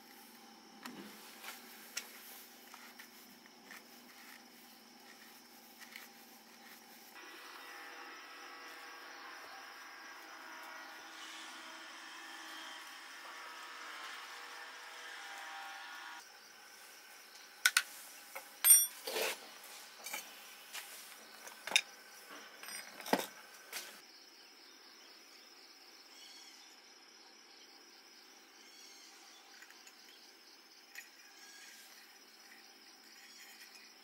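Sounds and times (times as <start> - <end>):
crickets chirring: 0.0 - 12.7, 16.2 - 34.0
metal objects clinking: 18.6 - 19.4, 21.4 - 23.4.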